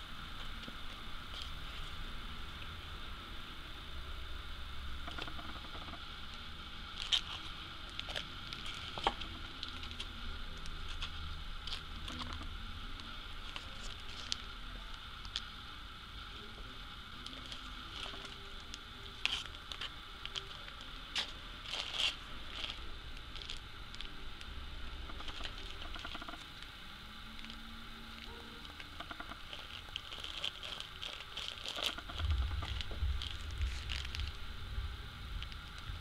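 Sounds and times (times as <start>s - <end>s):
plastic bag crinkling: 17.2s - 24.5s, 25.2s - 26.4s, 28.2s - 34.7s.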